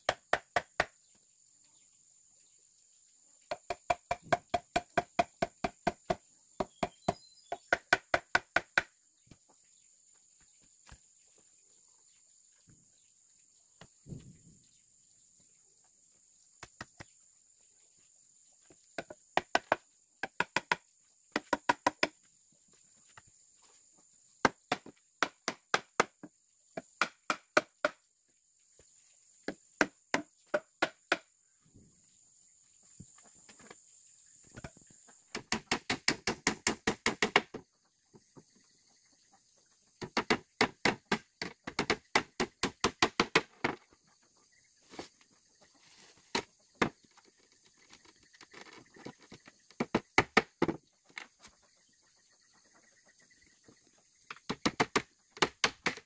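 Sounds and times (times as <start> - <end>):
hand tool striking wood: 19.0 - 22.2, 24.4 - 28.0, 29.5 - 31.3, 34.6 - 37.6, 40.0 - 43.8, 48.6 - 50.8, 54.3 - 56.0.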